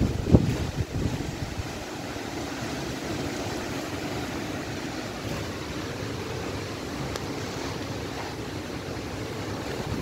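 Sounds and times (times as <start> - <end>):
strong wind rushing: 0.0 - 2.0
wind buffeting microphone: 0.0 - 5.8, 7.8 - 10.0.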